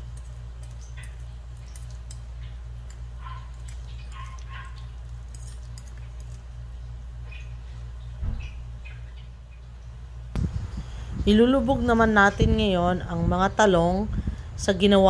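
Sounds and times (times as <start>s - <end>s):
cutlery clicking and scraping: 0.0s - 6.4s
low hum: 0.0s - 14.7s.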